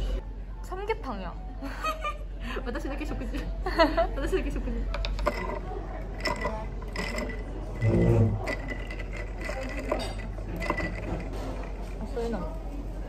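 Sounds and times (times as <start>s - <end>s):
cafe background hum: 0.0s - 13.0s
ice clicking in a glass: 5.0s - 12.0s.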